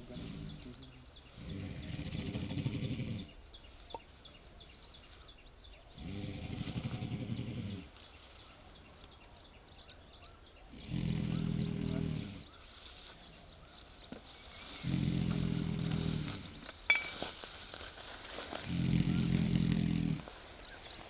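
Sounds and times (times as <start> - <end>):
elephant rumbling: 0.0 - 3.4, 5.9 - 7.9, 10.8 - 12.6, 14.5 - 17.1, 18.5 - 21.0
bird chirping: 0.0 - 21.0.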